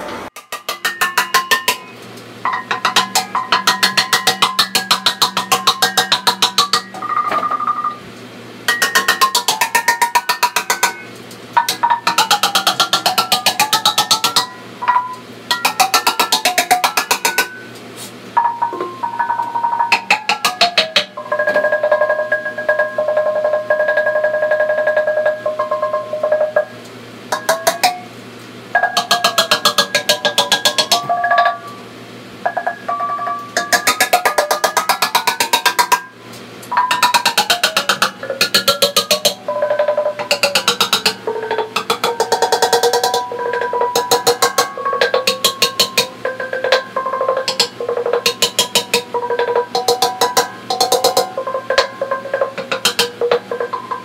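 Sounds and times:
hammer blows on steel handpan: 0.0 - 7.7, 8.7 - 17.8, 18.4 - 54.0
handpan note ringing: 0.7 - 7.9, 8.7 - 17.8, 18.4 - 28.2, 28.8 - 54.0.

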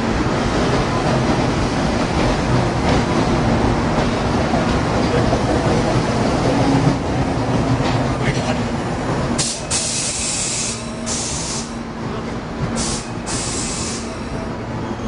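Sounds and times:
train humming and rumbling: 0.0 - 15.0
air brakes hissing: 9.4 - 11.8, 12.7 - 14.4.

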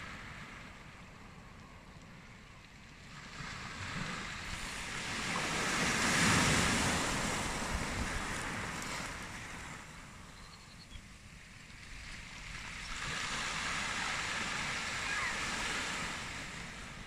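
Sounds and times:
wave breaking on pebble beach: 3.6 - 9.8.

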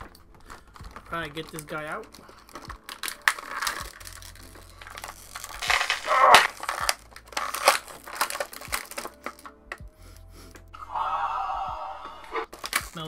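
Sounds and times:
plastic packaging crinkling: 0.0 - 9.7, 12.5 - 13.0.

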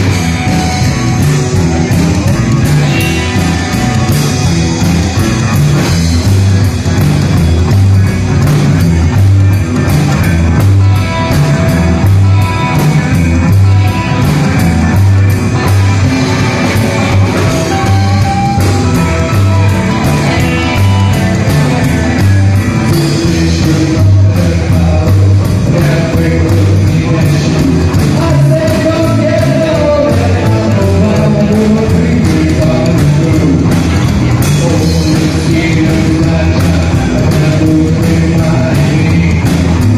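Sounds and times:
double bass: 0.0 - 39.9
drum kit beat: 0.0 - 39.9
electric guitars: 0.0 - 39.9
male lead vocal: 16.0 - 39.9.

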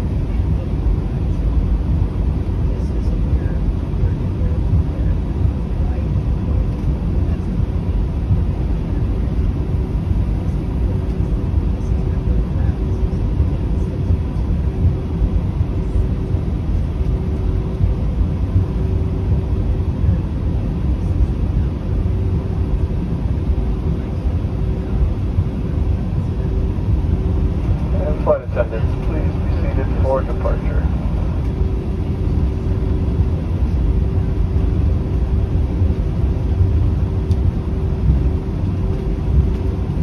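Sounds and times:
aircraft cabin rumble: 0.0 - 40.0
faint steady hum: 0.0 - 40.0.

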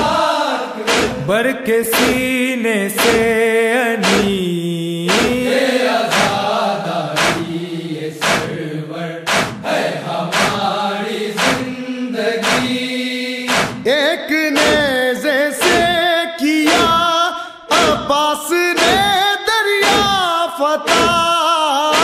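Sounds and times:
men chanting: 0.0 - 22.0
chest-beating slaps: 0.9 - 2.3, 3.0 - 3.3, 4.0 - 4.4, 5.1 - 6.4, 7.2 - 7.5, 8.2 - 8.6, 9.3 - 9.7, 10.3 - 10.7, 11.4 - 11.7, 12.4 - 12.9, 13.5 - 13.9, 14.6 - 15.0, 15.6 - 16.0, 16.7 - 17.1, 17.7 - 18.1, 18.8 - 19.2, 19.8 - 20.2, 20.9 - 21.3.

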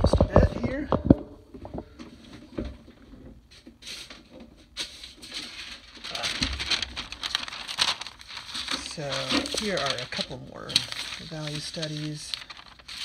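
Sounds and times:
paper rustling: 3.9 - 13.0.

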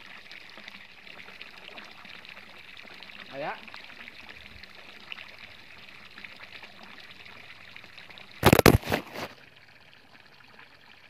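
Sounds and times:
water splashing from pipe into stream: 0.0 - 11.0
phone falling into plants: 8.4 - 9.3.

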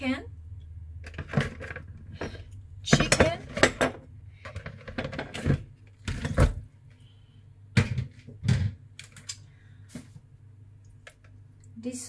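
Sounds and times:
plastic colander and bowl clattering: 2.9 - 6.6.

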